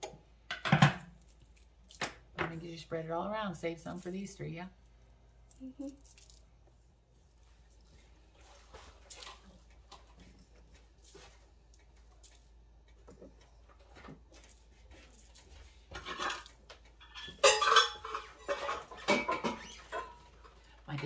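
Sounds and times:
dishes and utensils clattering: 0.5s - 1.1s, 15.9s - 21.0s.

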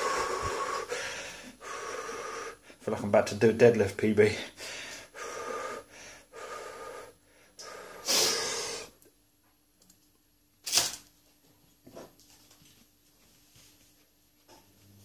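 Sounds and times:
man breathing heavily: 0.0s - 2.9s, 4.3s - 9.0s.

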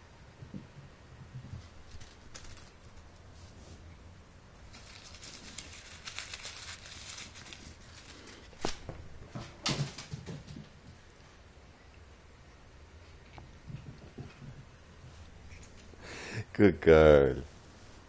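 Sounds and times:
paper ball crinkling: 1.6s - 3.4s, 4.6s - 9.2s.

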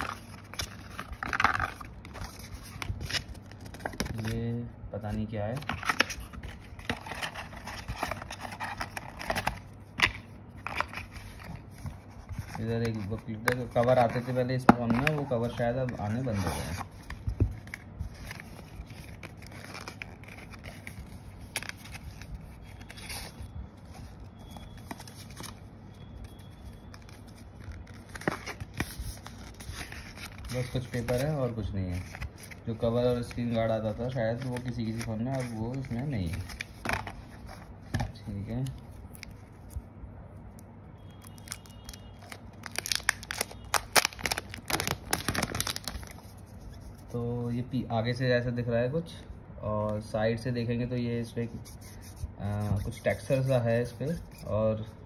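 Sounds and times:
paper rustling: 26.3s - 39.4s
plastic film crackling: 41.1s - 46.8s.

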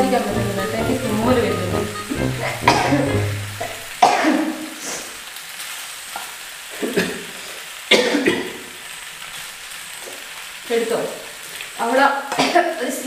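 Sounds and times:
pasta sizzling in a pan: 0.0s - 13.0s
spatula scraping and knocking pan: 2.5s - 4.0s.

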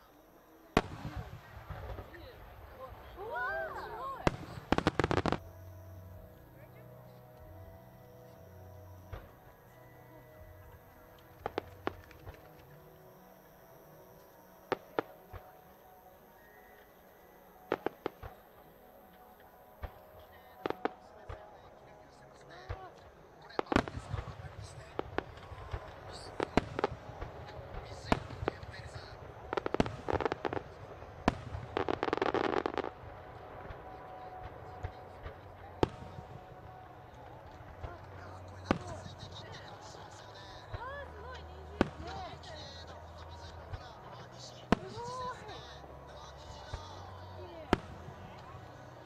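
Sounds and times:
fireworks shells exploding: 4.2s - 5.4s, 23.5s - 40.8s.

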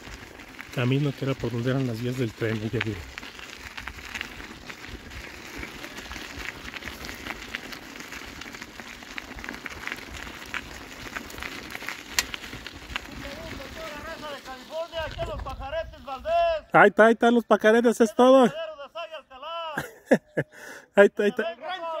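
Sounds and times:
footsteps crunching on dirt road: 0.0s - 16.1s.

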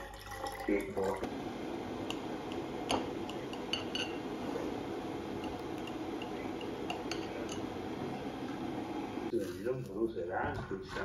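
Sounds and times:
electric kettle heating water: 0.0s - 9.8s
knife clinking on ceramic plate: 3.6s - 4.2s.

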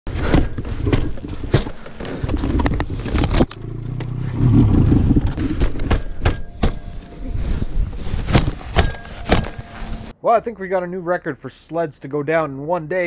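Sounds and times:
knocks and scraping of snow: 6.7s - 10.1s.

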